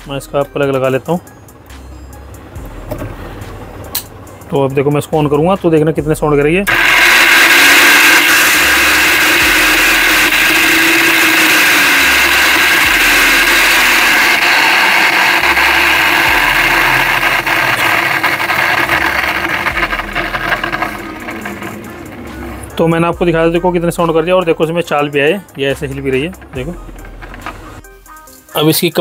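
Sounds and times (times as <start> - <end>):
mixer grinder motor running harshly: 6.7 - 27.8.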